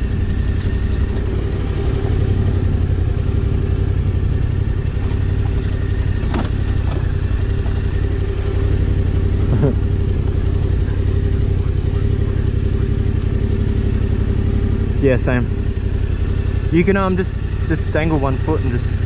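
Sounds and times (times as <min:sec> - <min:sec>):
motorcycle engine at low revs: 0:00.0 - 0:19.0
motorcycle knocking over bumps: 0:04.6 - 0:08.2.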